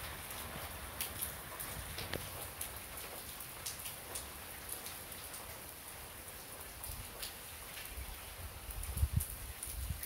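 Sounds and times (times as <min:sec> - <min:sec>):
steady rain falling: 0:00.0 - 0:10.0.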